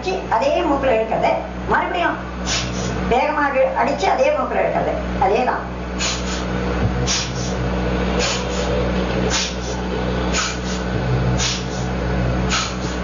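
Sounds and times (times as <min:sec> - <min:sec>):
steady low hum: 0:00.0 - 0:13.0
forceful nasal exhalations: 0:02.4 - 0:03.1, 0:05.9 - 0:13.0.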